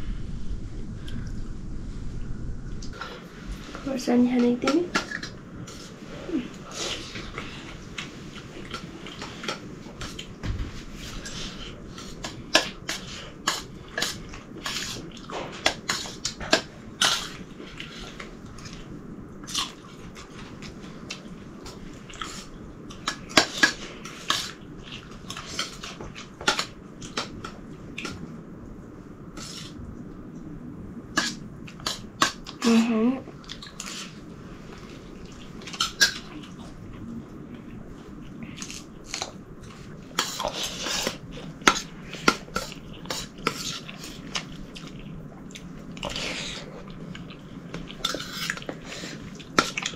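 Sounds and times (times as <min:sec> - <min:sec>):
chewing: 0:04.9 - 0:10.4, 0:11.0 - 0:28.3, 0:33.3 - 0:49.9.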